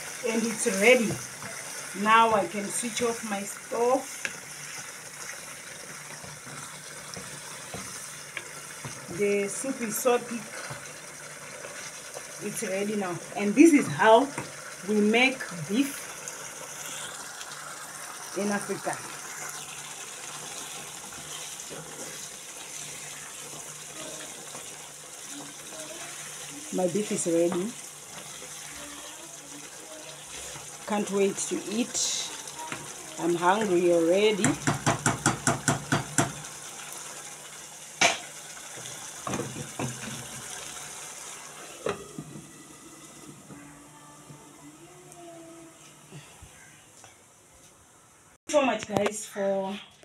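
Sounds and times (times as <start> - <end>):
wooden spoon tapping metal pot: 34.4 - 36.4.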